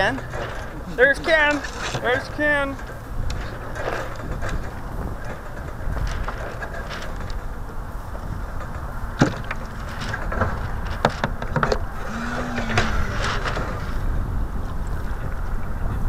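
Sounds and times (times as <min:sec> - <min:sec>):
wind rumbling on microphone: 0:00.0 - 0:16.0
short low whine: 0:11.6 - 0:16.0.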